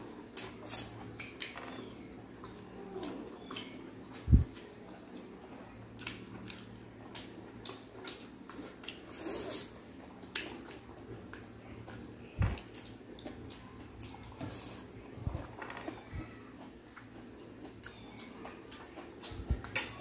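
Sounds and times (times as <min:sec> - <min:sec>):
wet chewing: 0:05.9 - 0:20.0.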